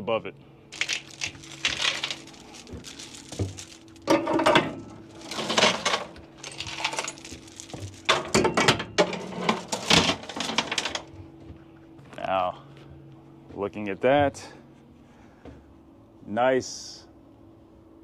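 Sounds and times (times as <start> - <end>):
chains clanking against metal: 0.8 - 11.0.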